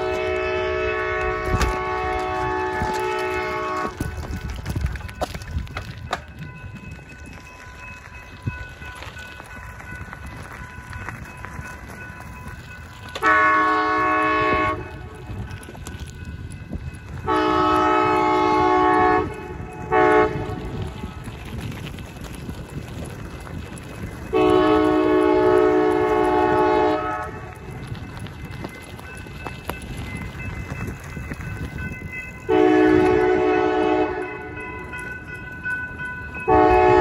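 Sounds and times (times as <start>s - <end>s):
locomotive air horn blasts: 0.0s - 4.2s, 13.2s - 15.1s, 17.2s - 20.6s, 24.3s - 27.5s, 32.5s - 34.5s, 36.5s - 37.0s.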